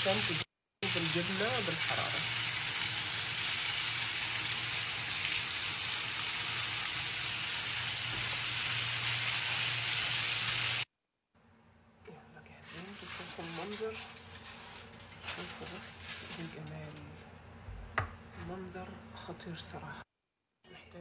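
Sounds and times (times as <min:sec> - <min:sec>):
chicken sizzling in a pan: 0:00.0 - 0:10.9.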